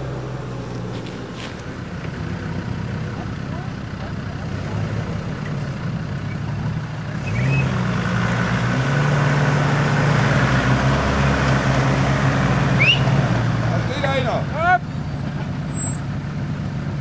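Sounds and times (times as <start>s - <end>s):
car engine running: 0.0s - 7.2s.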